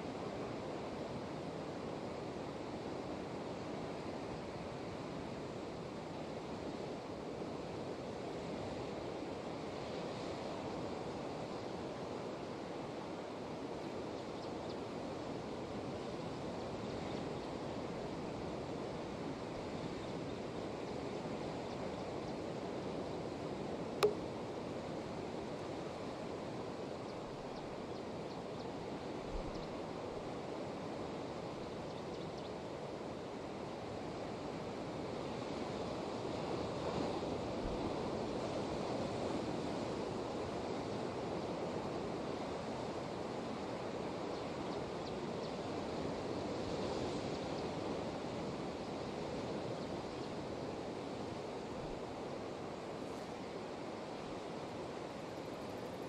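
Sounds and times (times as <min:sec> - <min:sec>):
sharp click: 0:24.0 - 0:24.3.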